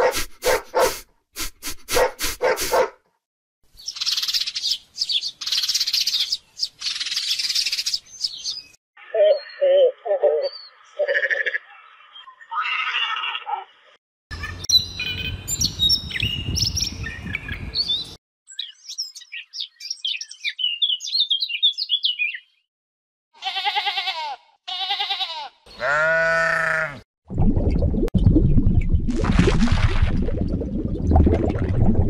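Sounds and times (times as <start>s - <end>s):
animal bleating: 11.0s - 11.6s, 23.4s - 27.0s.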